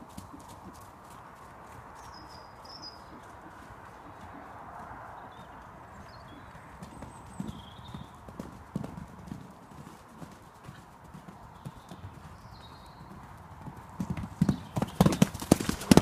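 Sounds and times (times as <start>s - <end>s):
hooves thudding on soft ground: 0.0s - 16.0s
faint bird chirps: 2.0s - 4.5s, 5.1s - 8.2s, 11.4s - 13.3s.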